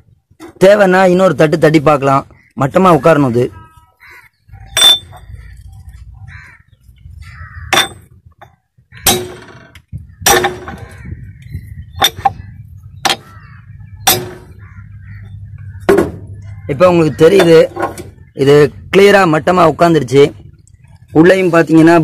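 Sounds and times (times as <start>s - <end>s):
sharp metallic knocks: 4.7s - 5.3s, 7.7s - 11.2s, 12.0s - 13.4s, 14.0s - 14.8s, 15.8s - 16.4s, 17.2s - 18.2s.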